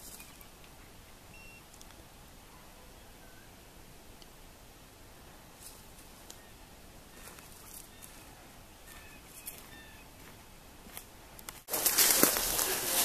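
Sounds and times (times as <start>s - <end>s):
bird chirps: 1.3s - 1.6s, 6.4s - 10.1s
footsteps on gravel: 7.2s - 13.0s.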